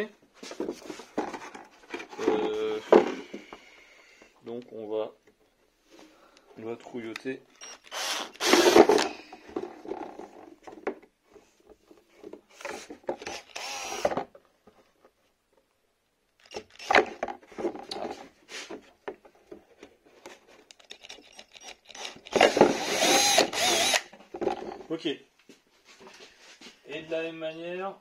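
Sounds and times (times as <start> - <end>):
drilling: 7.6 - 9.1, 13.2 - 14.2, 21.6 - 24.1
tools clicking and scraping plastic: 19.1 - 24.8.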